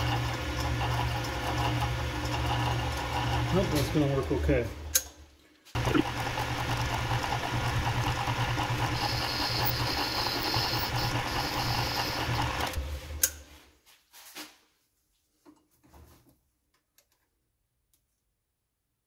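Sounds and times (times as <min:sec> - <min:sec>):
metal lathe humming: 0:00.0 - 0:04.4, 0:05.8 - 0:12.8
thin high whine: 0:08.7 - 0:12.8.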